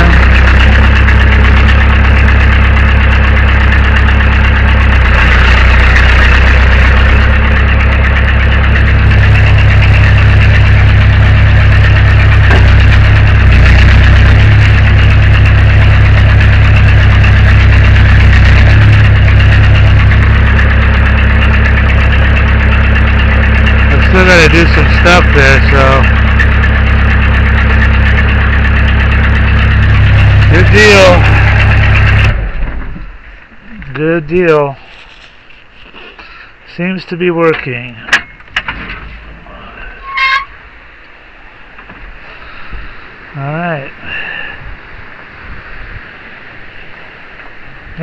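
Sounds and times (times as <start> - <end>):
hydraulics working: 0.0 - 35.5
backhoe engine running: 0.0 - 48.0.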